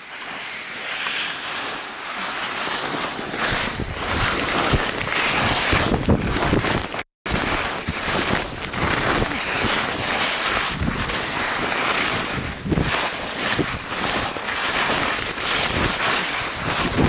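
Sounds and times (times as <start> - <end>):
skis scraping on snow: 0.0 - 17.0
wind buffeting microphone: 3.5 - 11.2, 12.1 - 14.0, 15.6 - 17.0.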